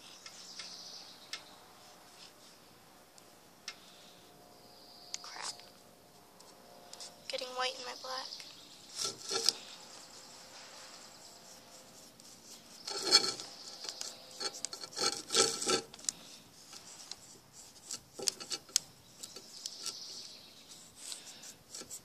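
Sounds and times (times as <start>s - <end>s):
rubbing and scraping on newspaper: 8.9s - 18.8s, 19.5s - 22.0s.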